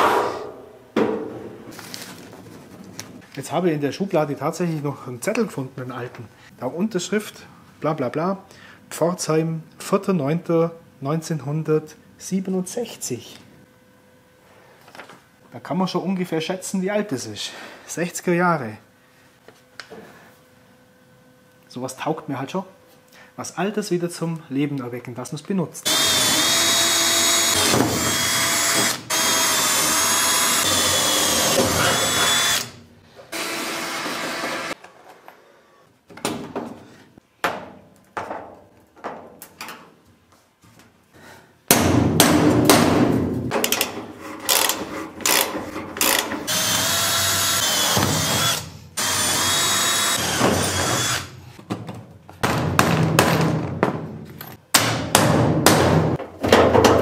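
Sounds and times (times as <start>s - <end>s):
electric drill whining: 25.9s - 34.8s, 46.0s - 51.4s.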